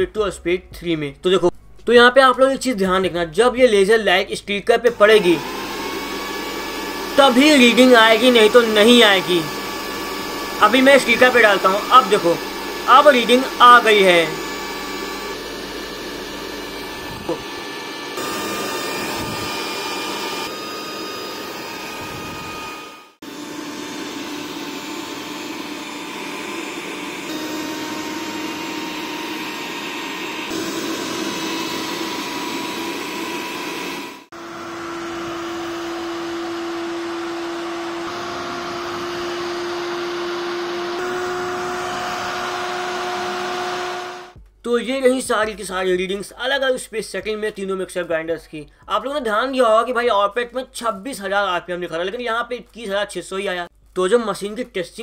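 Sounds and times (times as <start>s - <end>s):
mixer grinder motor whining: 4.9s - 44.4s.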